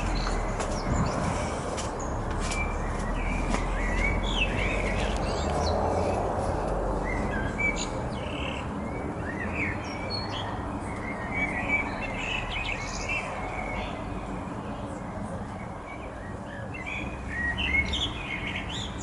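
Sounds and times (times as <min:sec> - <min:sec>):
steady low rumble: 0:00.0 - 0:08.0
birds chirping: 0:00.0 - 0:19.0.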